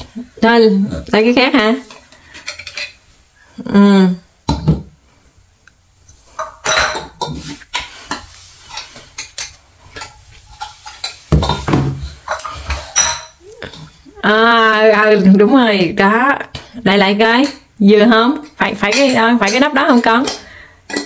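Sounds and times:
glass jars clinking: 12.3 - 13.9.

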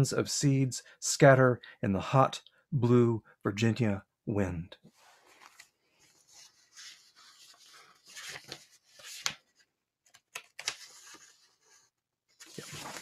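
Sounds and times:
paper rustling: 4.9 - 13.0
paper crackles: 5.2 - 9.5, 12.4 - 13.0.

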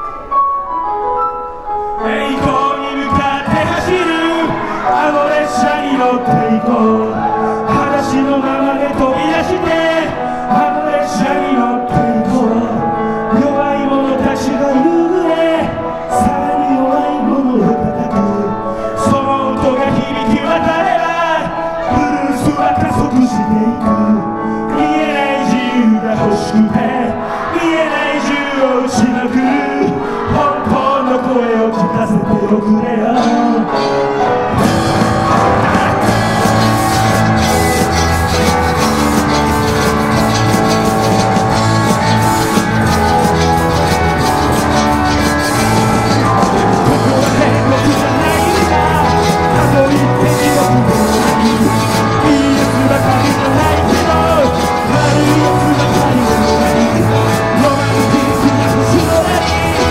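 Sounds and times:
man singing: 2.0 - 59.9
live rock band playing: 33.4 - 59.9.

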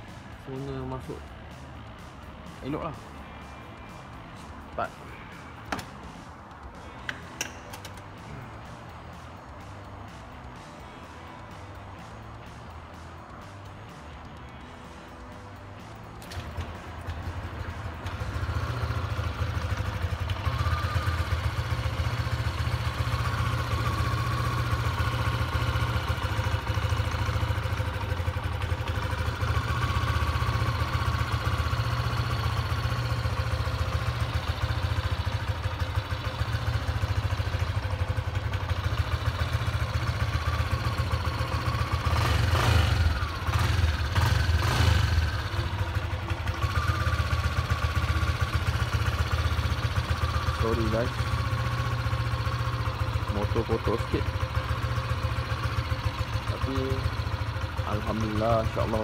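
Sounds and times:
scooter engine idling: 15.8 - 59.0.

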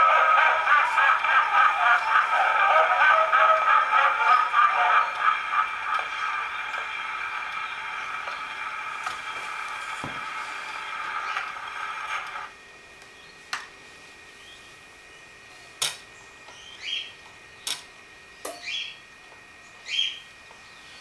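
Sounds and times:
gramophone playback: 0.0 - 12.6
bird chirping: 16.2 - 17.7, 19.6 - 21.0.

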